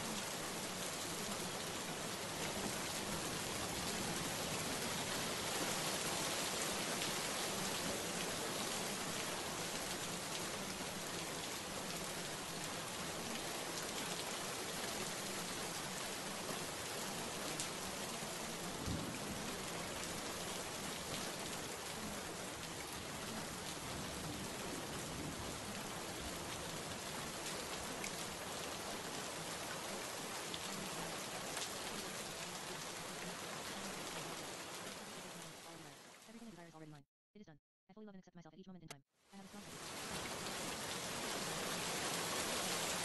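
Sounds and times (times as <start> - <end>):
steady rain hiss: 0.0 - 36.5, 39.4 - 43.0.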